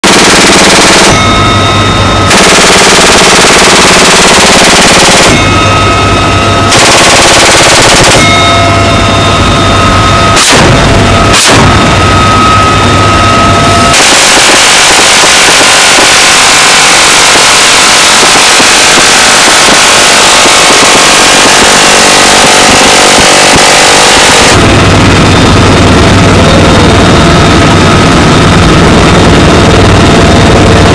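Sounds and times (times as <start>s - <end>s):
short sharp reports: 0.0s - 25.3s
helicopter whine and rotor hum: 0.0s - 30.9s
minigun firing bursts: 2.3s - 5.4s, 6.7s - 8.3s, 10.4s - 12.1s.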